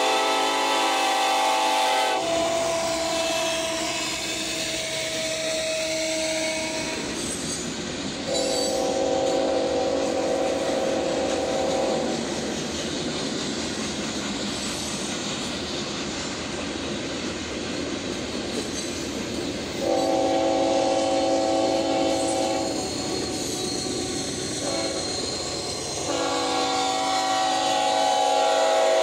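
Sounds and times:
train air horn blasts: 0.0 - 7.2, 8.3 - 12.3, 19.8 - 23.3, 24.6 - 25.4, 26.0 - 29.0
train rail rumble: 0.0 - 29.0.

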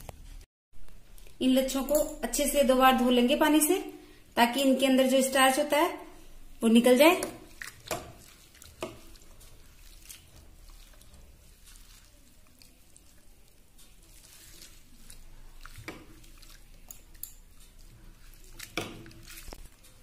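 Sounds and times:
hands squeezing potato in water: 6.2 - 20.0
water splashing and dripping: 7.1 - 20.0.

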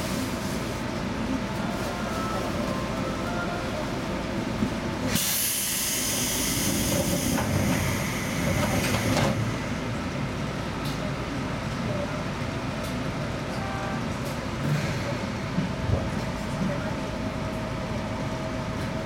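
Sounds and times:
train equipment humming: 0.0 - 14.8
compressed air hissing: 5.2 - 9.1.

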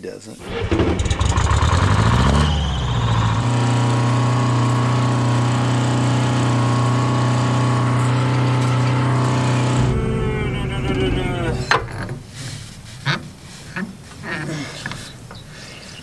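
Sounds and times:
tractor engine revving up: 0.4 - 12.4.

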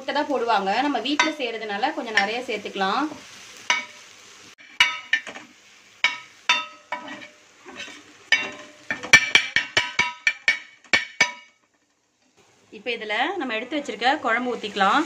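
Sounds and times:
egg and onion sizzling: 0.0 - 15.0
spatula scraping and tapping griddle: 1.2 - 1.4, 4.6 - 11.9.

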